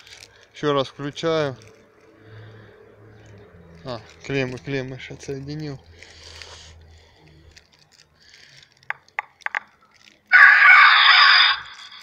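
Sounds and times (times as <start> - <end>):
animal call through horn speakers: 10.3 - 12.0.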